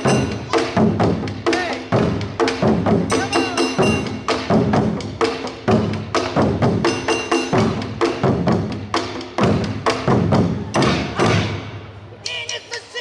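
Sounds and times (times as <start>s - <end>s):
taiko drums beating: 0.0s - 11.9s.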